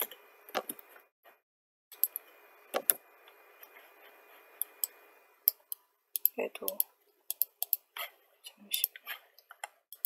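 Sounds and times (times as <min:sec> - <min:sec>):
mouse and keyboard clicks: 0:02.0 - 0:03.0, 0:04.6 - 0:10.0.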